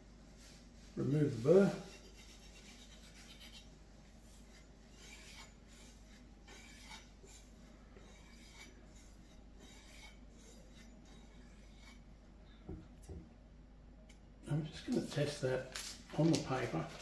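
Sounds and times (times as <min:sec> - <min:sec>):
knife edge scraping on block: 0:01.9 - 0:03.7, 0:04.4 - 0:12.0.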